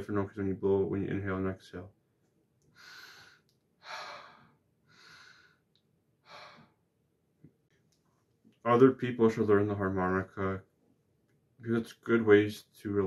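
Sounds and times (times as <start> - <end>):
soft breaths: 2.7 - 6.9.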